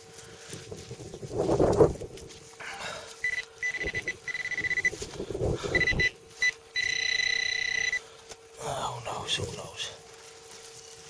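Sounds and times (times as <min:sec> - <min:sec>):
metal detector beeping: 0:03.2 - 0:05.0, 0:05.7 - 0:08.0.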